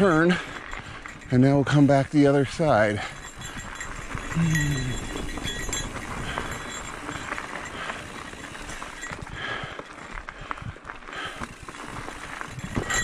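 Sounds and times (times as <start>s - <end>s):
bike clicking and rattling: 0.0s - 13.0s
bike tyres rolling over dirt: 0.0s - 13.0s
rider grunting: 2.3s - 9.9s.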